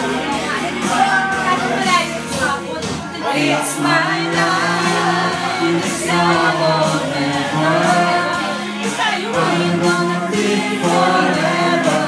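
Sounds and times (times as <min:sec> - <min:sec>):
karaoke backing track: 0:00.0 - 0:12.0
man singing into microphone: 0:03.2 - 0:12.0.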